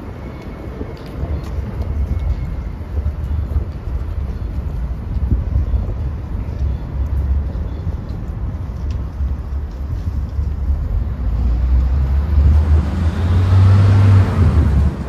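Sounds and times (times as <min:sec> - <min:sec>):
road traffic rumble: 0:00.0 - 0:15.0
vehicle passing close: 0:11.2 - 0:15.0.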